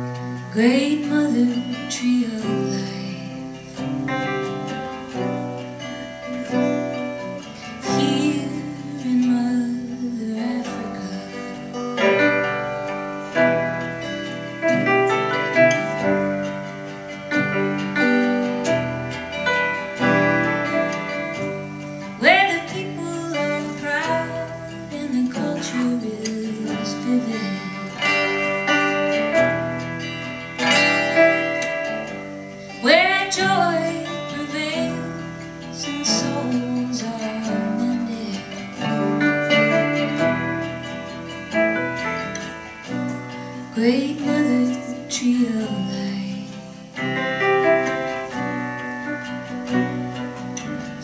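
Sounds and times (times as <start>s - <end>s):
acoustic guitar: 0.0s - 51.0s
piano: 0.0s - 51.0s.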